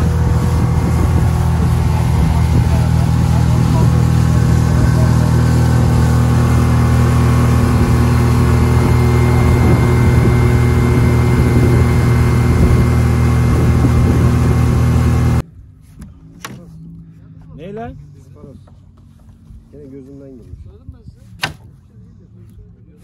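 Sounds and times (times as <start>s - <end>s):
churning wake rushing: 0.0s - 15.4s
outboard motor drone: 0.0s - 15.4s.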